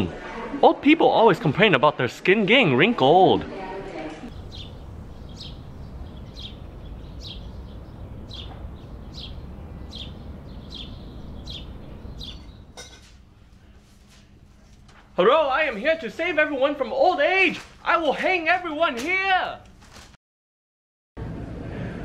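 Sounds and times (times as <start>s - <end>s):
low outdoor rumble: 3.6s - 18.6s, 21.2s - 22.0s
bird chirping: 4.3s - 12.9s.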